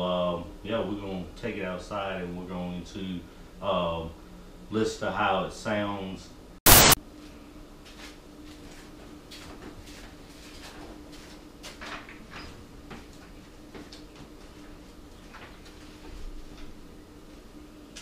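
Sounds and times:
faint steady hum: 0.0s - 8.8s.

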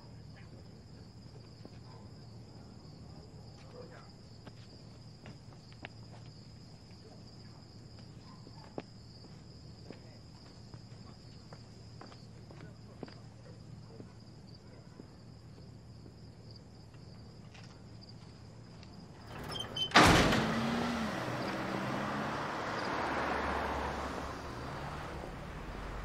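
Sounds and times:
car driving past: 19.2s - 26.0s.

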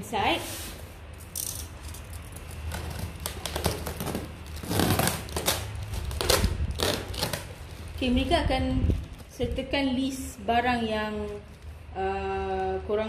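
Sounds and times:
utility knife cutting plastic wrap: 2.3s - 7.9s.

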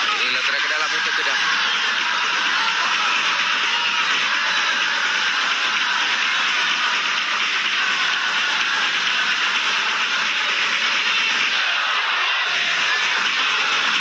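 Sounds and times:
stadium crowd din: 0.0s - 14.0s.

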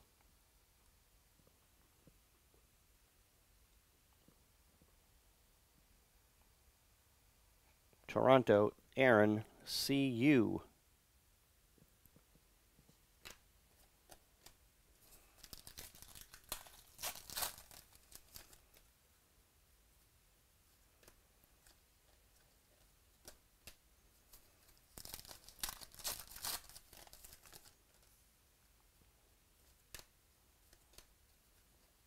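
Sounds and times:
foil wrapper tearing and crinkling: 15.1s - 18.7s, 24.4s - 27.8s.

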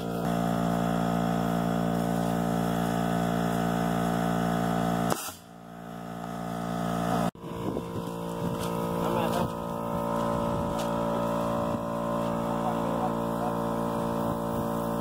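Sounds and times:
small engine humming: 0.0s - 15.0s
air cannon blast: 5.1s - 5.5s.

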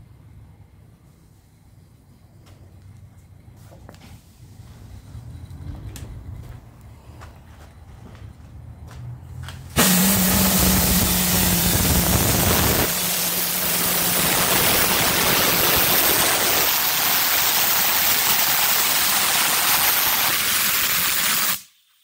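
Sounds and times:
steam hissing from safety valves: 9.8s - 22.0s.

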